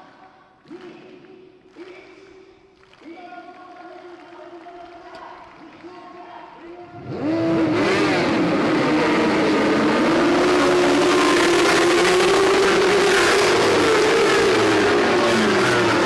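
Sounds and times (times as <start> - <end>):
racing motorbikes revving and accelerating: 6.9 - 16.0.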